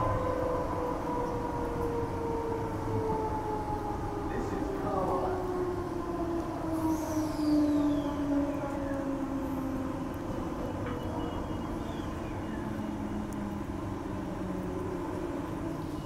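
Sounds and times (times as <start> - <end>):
wheels rumbling on track: 0.0 - 16.0.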